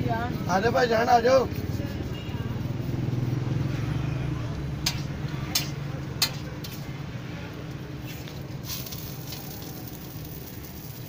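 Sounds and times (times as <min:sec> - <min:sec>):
sharp knocks on griddle: 0:04.8 - 0:06.8.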